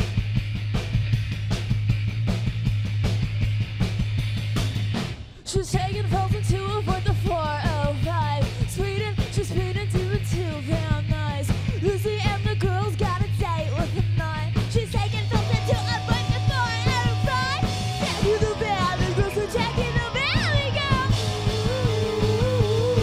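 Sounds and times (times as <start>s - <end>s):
bass guitar: 0.0s - 23.0s
drums: 0.0s - 23.0s
woman singing lead vocal: 5.4s - 23.0s
electric guitar: 14.6s - 23.0s
held keyboard notes: 15.0s - 23.0s.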